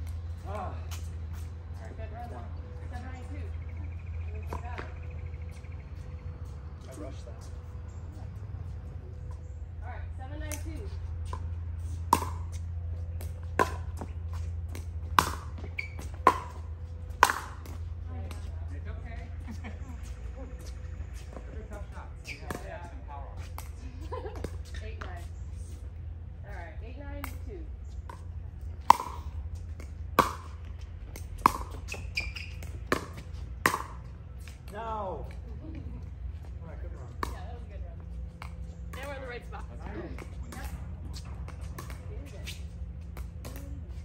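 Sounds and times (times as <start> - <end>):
paddles striking pickleball: 10.4 - 18.6, 21.3 - 22.8, 27.2 - 35.4, 37.0 - 44.0.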